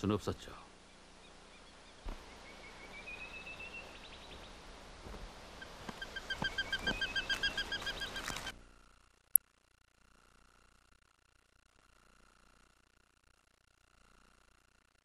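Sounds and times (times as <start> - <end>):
eagle whistling and piping calls: 1.2 - 4.5, 5.6 - 8.5.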